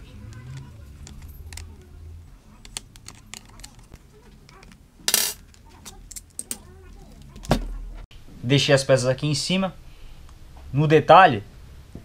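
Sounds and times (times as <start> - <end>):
plastic helmet parts clicking: 0.3 - 1.9, 2.6 - 7.6.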